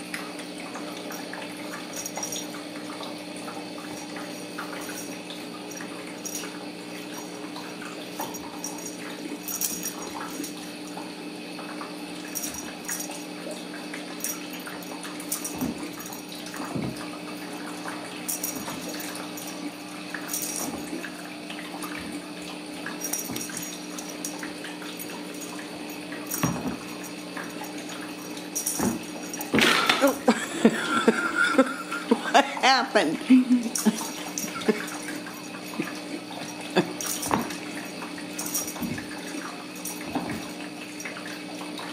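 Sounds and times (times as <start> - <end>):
household hum and hiss: 0.0 - 41.9
person speaking: 32.0 - 34.9.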